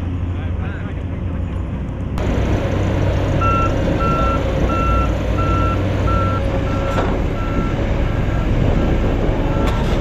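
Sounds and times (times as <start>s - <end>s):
diesel machinery running: 0.0s - 10.0s
reversing alarm beeping: 3.4s - 8.6s.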